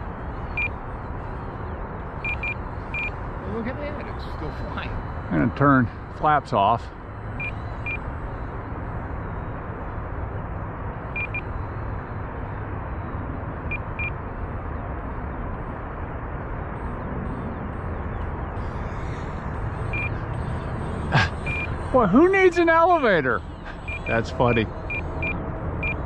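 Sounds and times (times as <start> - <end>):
steady rushing noise: 0.0 - 26.0
transmitter timer double beeps: 2.2 - 3.2, 19.8 - 26.0.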